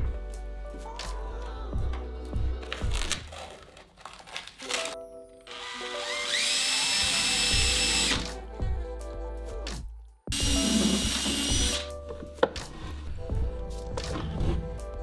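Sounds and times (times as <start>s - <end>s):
background music: 0.0s - 15.0s
cordless drill whining: 5.5s - 8.3s, 10.3s - 11.9s.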